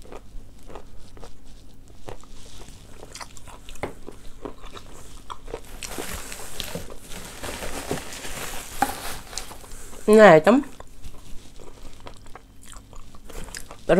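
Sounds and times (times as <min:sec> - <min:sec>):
chalk crunching in mouth: 0:00.0 - 0:07.1, 0:10.8 - 0:13.9
plastic wrapping rustling: 0:05.0 - 0:12.2.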